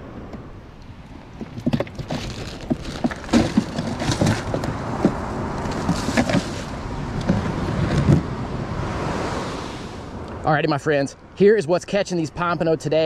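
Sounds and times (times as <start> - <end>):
plastic bag of ice crinkling: 2.0 - 4.6.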